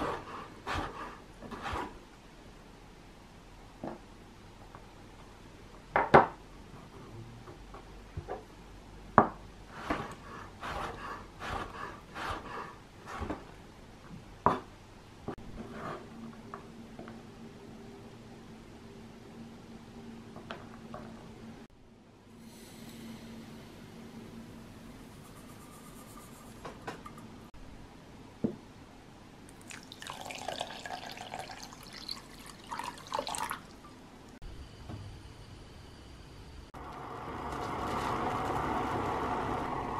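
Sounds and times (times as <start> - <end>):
sugar pouring hiss: 29.5 - 33.8
water splashing into saucepan: 29.5 - 33.8.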